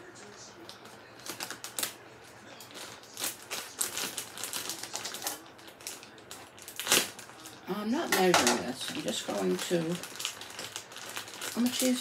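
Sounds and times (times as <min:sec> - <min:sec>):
plastic bag zip crinkling: 0:02.6 - 0:12.0.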